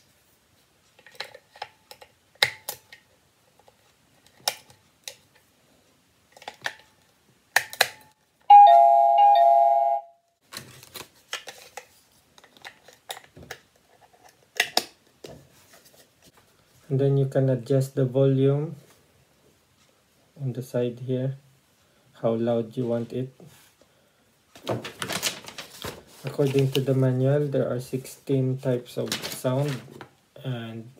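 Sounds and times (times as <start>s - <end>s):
electronic doorbell chime: 8.5s - 10.2s.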